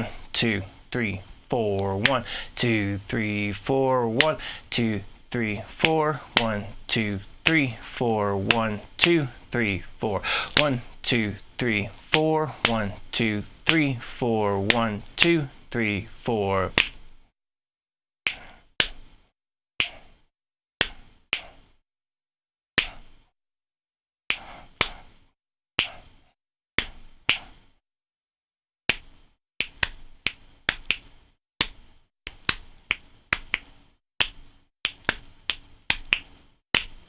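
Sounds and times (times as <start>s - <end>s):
hand slaps on leg: 16.8s - 17.0s, 20.8s - 21.6s, 22.8s - 23.0s, 25.8s - 26.1s, 26.8s - 27.6s, 28.9s - 37.0s
finger snaps: 19.8s - 20.0s, 26.8s - 27.6s, 28.9s - 37.0s.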